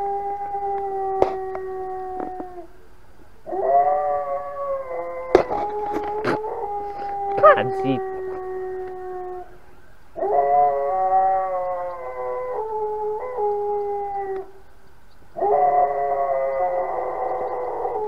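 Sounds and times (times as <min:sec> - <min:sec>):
dog howling: 0:03.5 - 0:09.6, 0:10.2 - 0:14.6, 0:15.4 - 0:18.0.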